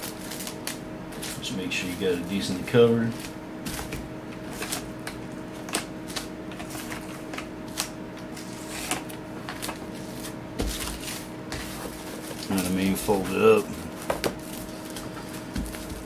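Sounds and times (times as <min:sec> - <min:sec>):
cling film crinkling: 0:00.0 - 0:02.4
faint steady hum: 0:00.0 - 0:16.0.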